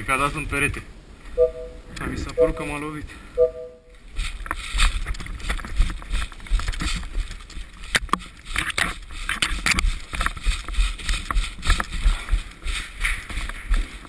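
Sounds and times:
running footsteps in snow: 0:04.0 - 0:14.0.

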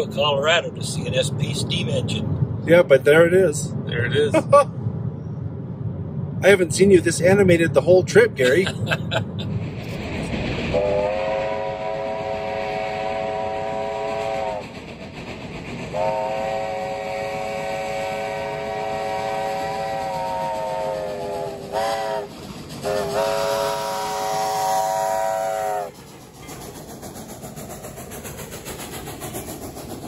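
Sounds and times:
steam locomotive whistle: 0:10.7 - 0:14.6, 0:15.9 - 0:25.9.

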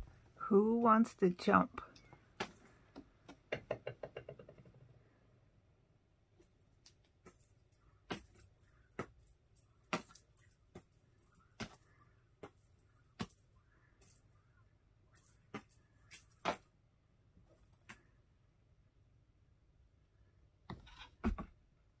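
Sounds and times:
small bells jingling: 0:06.4 - 0:14.4.

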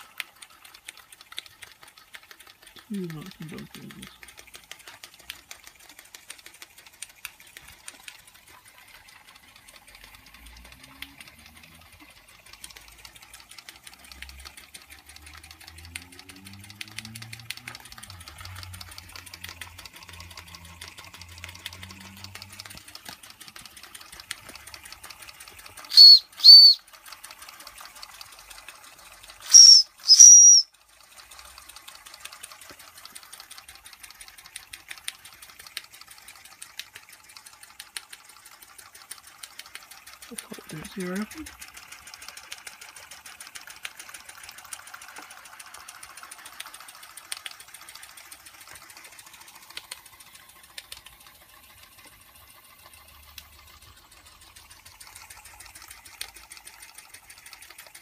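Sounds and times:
steam engine pistons ticking: 0:00.0 - 0:58.0
steam whistle toots: 0:25.9 - 0:26.8, 0:29.5 - 0:30.6.

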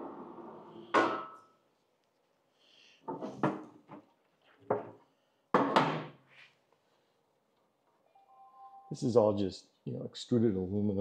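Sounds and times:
objects knocking and clunking: 0:03.0 - 0:06.2.

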